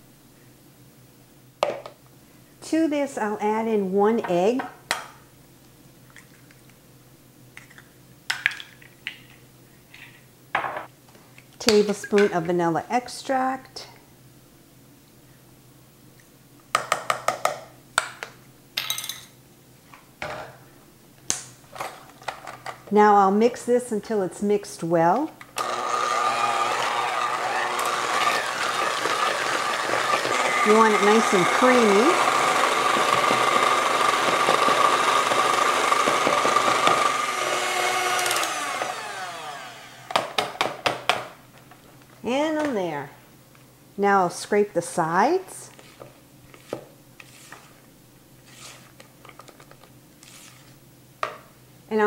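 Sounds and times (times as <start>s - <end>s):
electric hand mixer whining: 25.6s - 40.4s.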